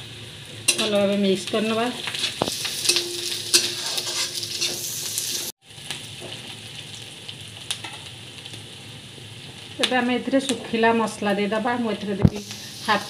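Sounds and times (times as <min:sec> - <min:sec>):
onions sizzling in oil: 0:00.0 - 0:13.0
spatula scraping a pan: 0:02.0 - 0:05.5.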